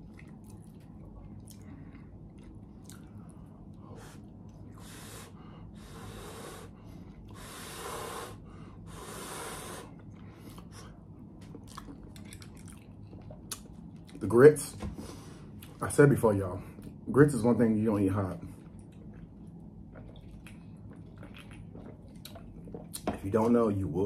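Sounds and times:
chewing clicks: 11.4s - 14.2s.

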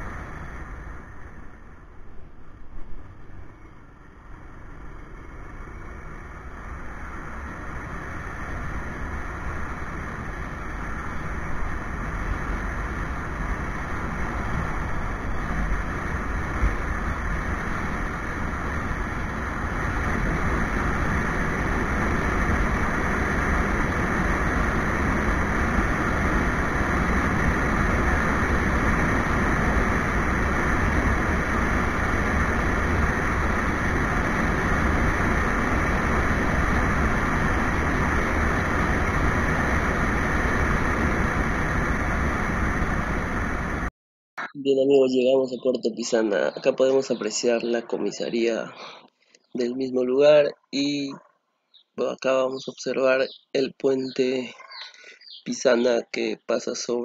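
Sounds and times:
motorcycle road noise: 0.0s - 43.9s
rushing wind: 0.0s - 43.9s.

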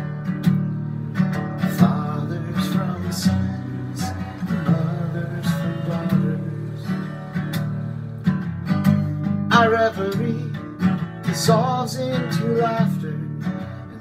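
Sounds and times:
acoustic guitar strumming: 0.0s - 14.0s
man singing: 1.4s - 7.6s, 9.5s - 14.0s.

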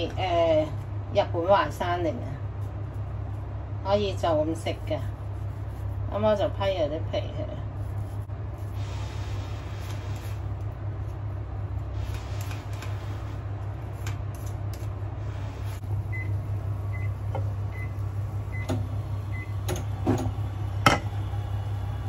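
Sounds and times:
kitchen appliance humming: 7.8s - 22.0s.

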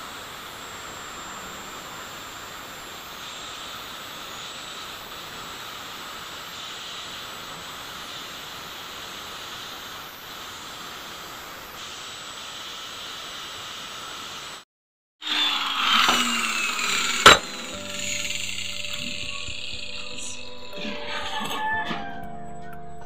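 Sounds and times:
angle grinder grinding steel: 15.2s - 21.7s.

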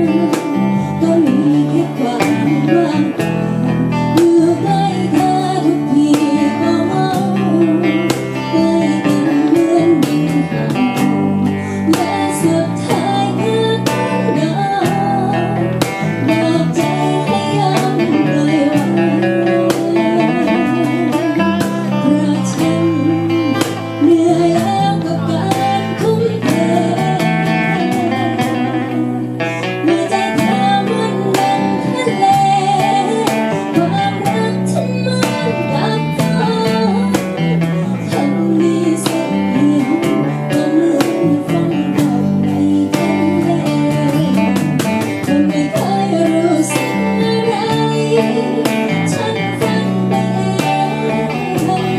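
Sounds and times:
cajon beat: 0.0s - 51.9s
strummed acoustic guitars: 0.0s - 51.9s
woman singing with vibrato: 0.0s - 51.9s.

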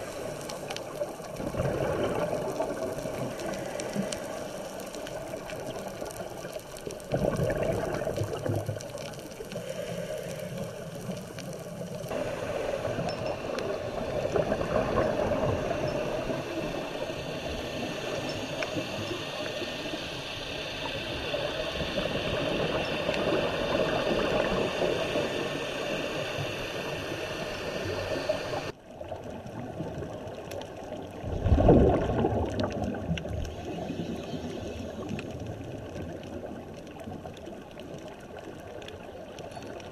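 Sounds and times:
exhaled bubbles gurgling: 0.0s - 39.9s
diver's regulator breathing: 9.3s - 28.7s.

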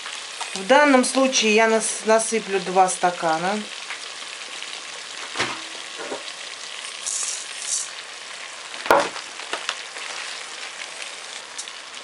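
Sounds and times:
meat sizzling: 0.0s - 12.0s
dry rice pouring: 6.9s - 7.9s.

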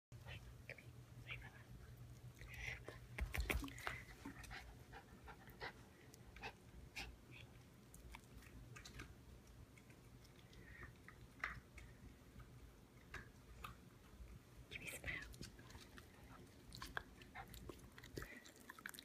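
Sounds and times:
dog mouth clicks and smacks: 2.9s - 4.0s.

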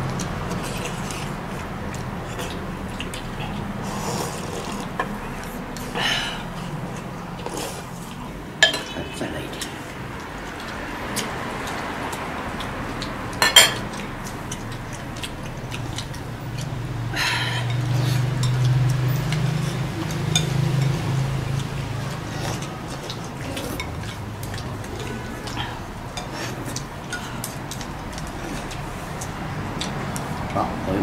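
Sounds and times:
chopsticks clinking porcelain bowls: 6.9s - 16.7s, 17.5s - 30.6s.

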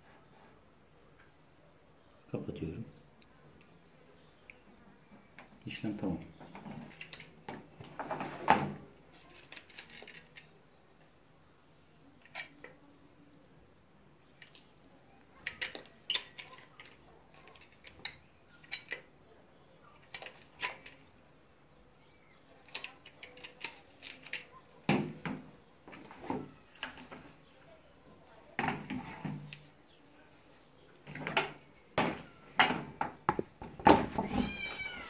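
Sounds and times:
plastic knocks: 31.2s - 34.4s.

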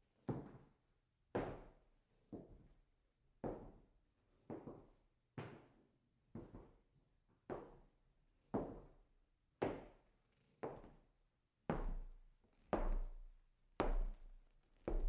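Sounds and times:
footsteps on wooden floor: 13.8s - 15.0s.

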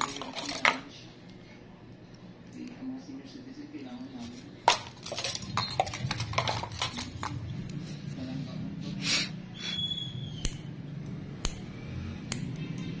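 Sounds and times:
nail clipper and tools clicking: 10.4s - 13.0s.

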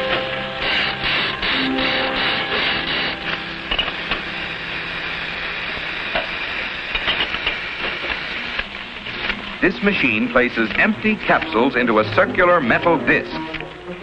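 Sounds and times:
soundtrack hiss: 0.0s - 14.0s
film score music: 11.0s - 14.0s.

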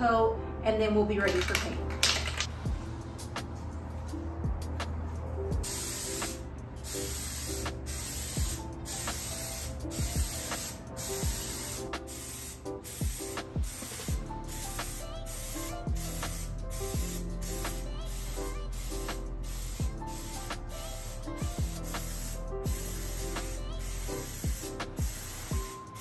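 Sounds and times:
background music: 0.0s - 26.0s
aerosol spray can hissing: 5.6s - 26.0s.

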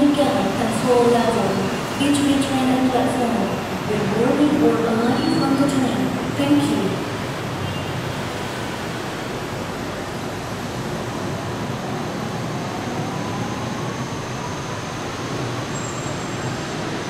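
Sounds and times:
monorail train rumble: 0.0s - 17.0s.

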